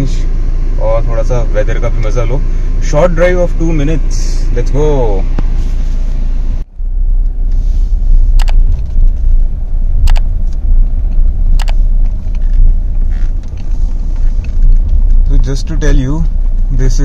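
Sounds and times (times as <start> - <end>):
diesel engine low rumble: 0.0 - 17.0
sharp clicks: 8.3 - 9.1, 9.9 - 15.4.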